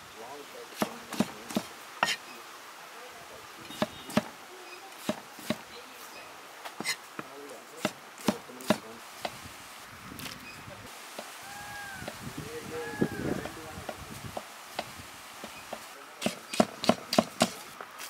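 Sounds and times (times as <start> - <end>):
knife chopping on wooden block: 0.8 - 2.2, 3.8 - 4.3, 7.8 - 9.4, 16.2 - 17.6.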